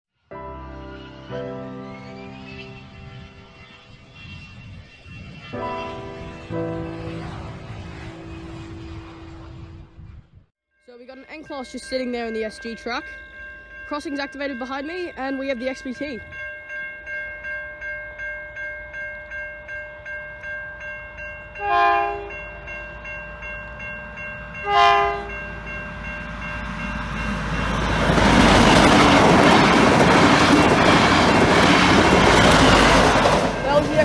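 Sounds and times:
train rushing past: 0.4s - 10.5s, 20.8s - 34.0s
level-crossing bells ringing: 10.8s - 34.0s
train horn blasts: 21.6s - 22.4s, 24.6s - 25.4s.

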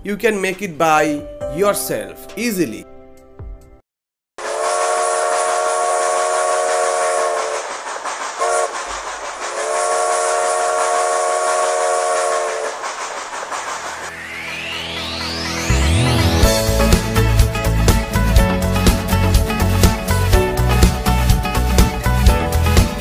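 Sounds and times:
steam locomotive whistle: 4.4s - 13.0s
steam hissing: 4.4s - 15.4s
rising sweep: 4.4s - 18.6s.

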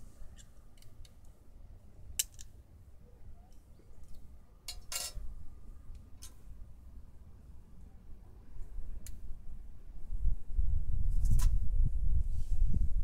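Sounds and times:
small metallic clicks and ticks: 2.2s - 2.5s.

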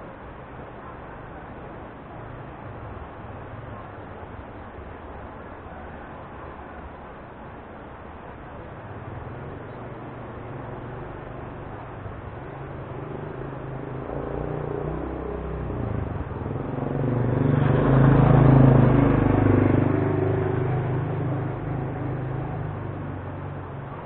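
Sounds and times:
vehicle engine passing by: 9.2s - 24.0s.

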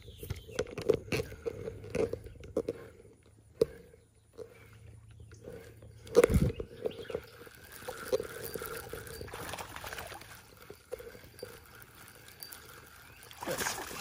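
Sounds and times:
fishing reel clicking: 5.4s - 14.0s.

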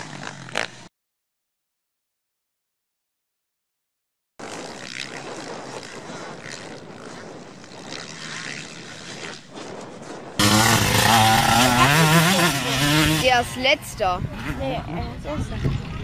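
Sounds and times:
distant motocross bike engines: 0.0s - 0.9s, 4.4s - 16.0s
motocross bike engine revving: 0.0s - 0.9s, 10.4s - 16.0s.

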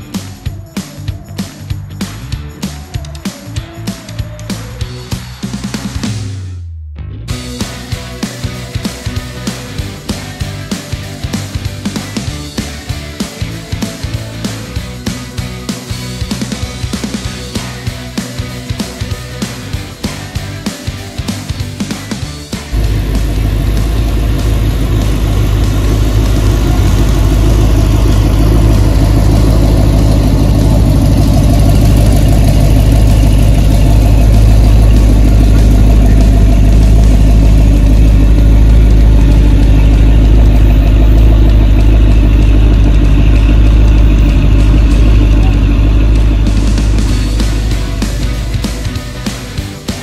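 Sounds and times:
car engine idling: 0.0s - 6.5s, 7.3s - 50.0s.

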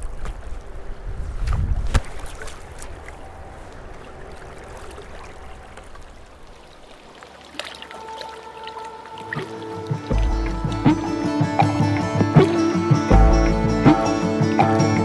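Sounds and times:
river water running: 0.0s - 15.0s
music: 8.0s - 15.0s.

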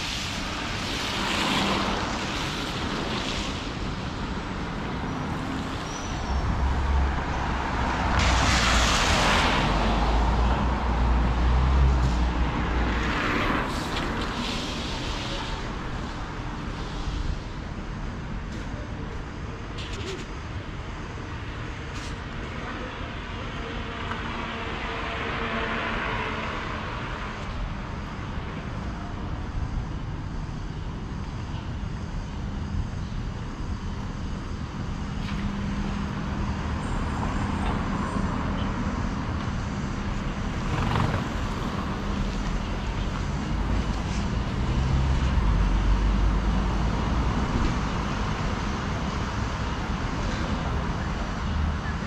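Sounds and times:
motor traffic passing: 33.2s - 52.0s
low rumble of passing vehicle: 34.9s - 48.2s.

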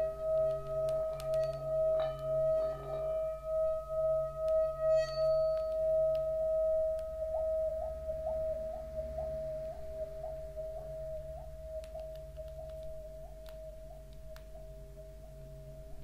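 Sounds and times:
high chime strikes: 0.0s - 10.5s
ringing metal tone: 0.0s - 11.8s
low hum: 0.0s - 16.0s
soft rising chirp: 0.0s - 16.0s.

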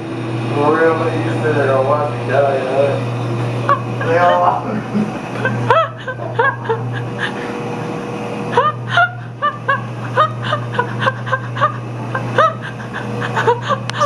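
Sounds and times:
whirlpool tub pump hum: 0.0s - 14.0s
person giggling: 3.6s - 14.0s.

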